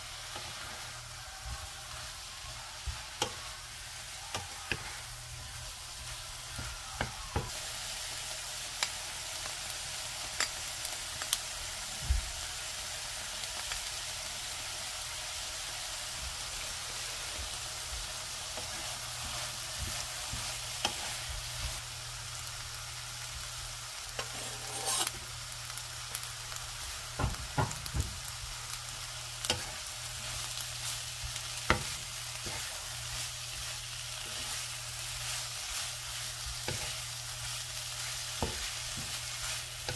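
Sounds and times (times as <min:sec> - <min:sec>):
wooden spatula stirring and scraping: 0:00.0 - 0:07.6, 0:17.4 - 0:21.8, 0:24.2 - 0:25.2, 0:29.4 - 0:39.9
vegetables sizzling in a frying pan: 0:00.0 - 0:39.9.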